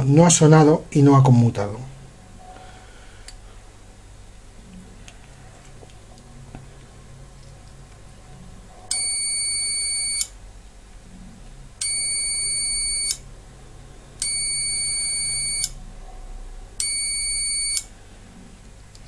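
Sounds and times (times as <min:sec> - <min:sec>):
multimeter continuity beeps: 0:08.9 - 0:10.3, 0:11.8 - 0:13.2, 0:14.2 - 0:15.8, 0:16.8 - 0:17.9.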